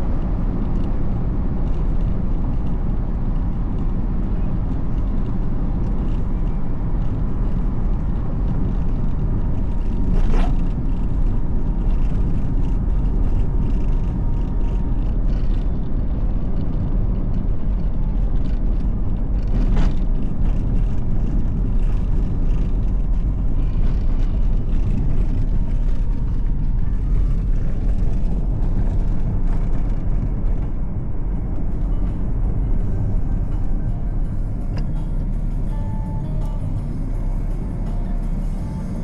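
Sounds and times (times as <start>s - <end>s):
low rumble of passing vehicles: 0.0s - 39.0s
music playing: 30.6s - 39.0s.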